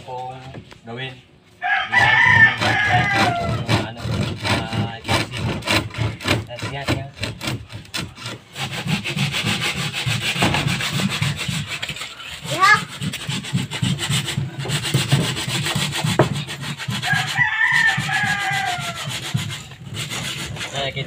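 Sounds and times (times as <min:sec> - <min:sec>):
rooster crowing: 0:01.6 - 0:03.6, 0:17.0 - 0:19.2
sandpaper sanding wood: 0:02.0 - 0:21.0.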